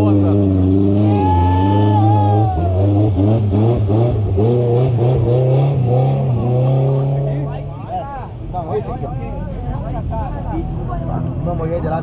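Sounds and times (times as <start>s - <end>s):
off-road engine revving hard: 0.0s - 7.7s
vehicle pushing through muddy water: 0.0s - 7.7s.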